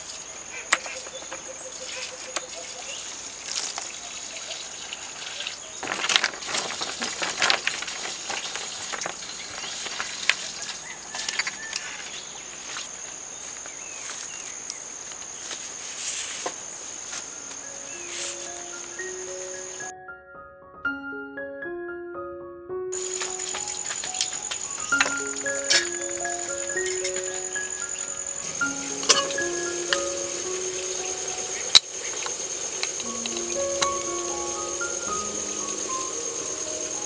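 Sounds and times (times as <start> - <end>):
coffee beans rustling on tray: 5.2 - 12.8
soft piano music: 17.2 - 37.0
high-pitched insect drone: 17.3 - 19.9, 23.0 - 37.0.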